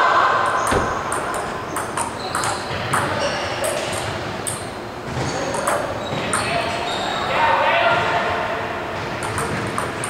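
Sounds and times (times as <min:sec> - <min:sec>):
table tennis ball bouncing: 0:00.6 - 0:06.7, 0:09.0 - 0:10.0.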